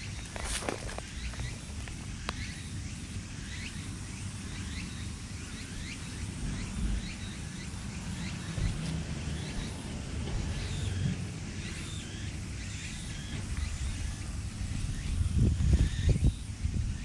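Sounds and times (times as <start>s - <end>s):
bird chirping: 0.0s - 17.0s
steady low rumble: 0.0s - 17.0s.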